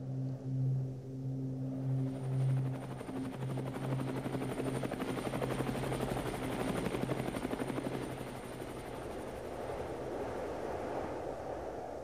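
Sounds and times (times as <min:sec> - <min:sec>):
rapid fluttering throb: 0:01.7 - 0:10.2.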